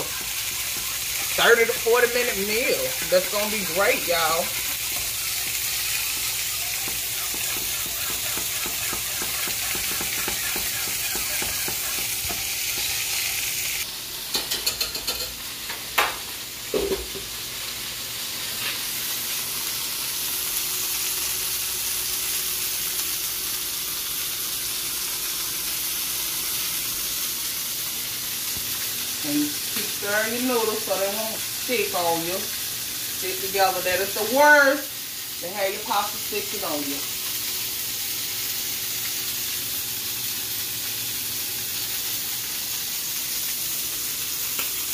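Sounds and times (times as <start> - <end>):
utensils clinking on pans: 0.0 - 13.2, 14.3 - 17.3
meat sizzling in a skillet: 0.0 - 44.9.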